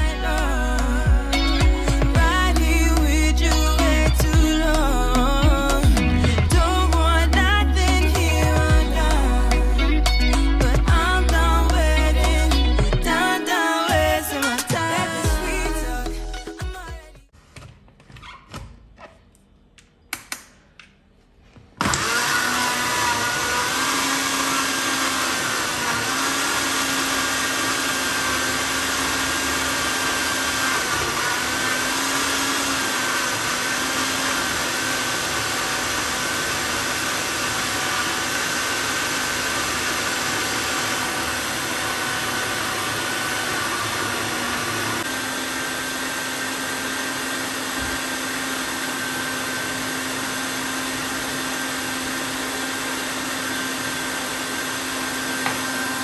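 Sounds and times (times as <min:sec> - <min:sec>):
blender motor whining: 0:21.8 - 0:56.0.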